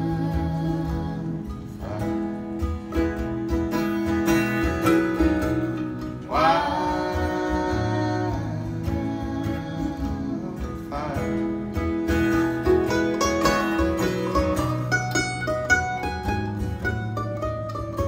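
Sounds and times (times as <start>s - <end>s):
person singing: 0.0s - 3.2s, 6.0s - 14.9s
acoustic guitar: 0.0s - 18.0s
mandolin: 0.0s - 18.0s.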